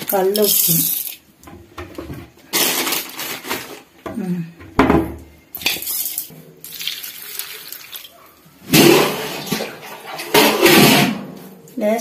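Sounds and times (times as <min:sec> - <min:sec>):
metal pan clanking and scraping: 0:08.7 - 0:11.4.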